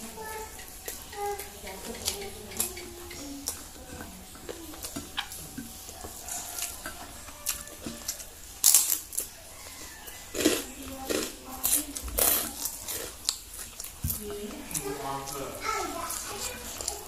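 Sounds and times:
fingers working through rice: 0.0s - 17.0s
wet chewing: 0.0s - 17.0s
crunchy bite into snack: 7.4s - 9.3s, 10.3s - 14.0s.

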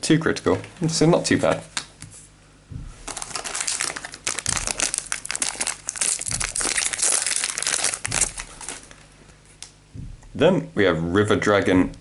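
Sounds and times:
foil wrapper crinkling: 3.1s - 9.7s.

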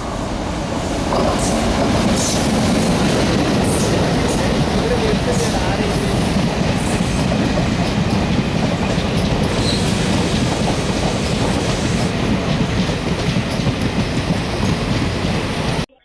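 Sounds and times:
train wheels on rails: 0.0s - 15.9s.

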